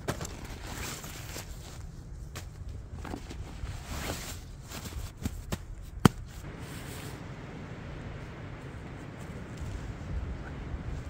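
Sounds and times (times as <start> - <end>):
wind rumbling on microphone: 6.4 - 11.0.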